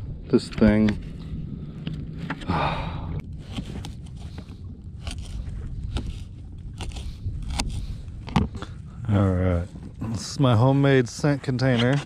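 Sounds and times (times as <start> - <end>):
low rumble: 0.0 - 12.0
breathy exhale: 2.4 - 3.7.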